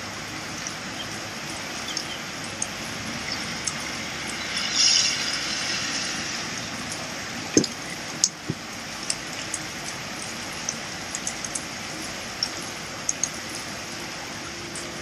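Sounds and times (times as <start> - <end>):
drips ticking: 0.0 - 15.0
heavy rain on wet street: 0.0 - 15.0
loud hiss: 3.0 - 8.6.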